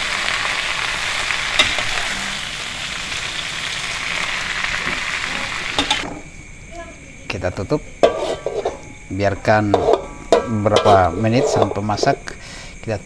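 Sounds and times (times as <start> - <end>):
greens sizzling in a wok: 0.0 - 12.8
metal spatula turning food: 4.8 - 6.3, 8.0 - 12.4
spatula clinking on pan: 8.0 - 9.0, 9.6 - 12.2.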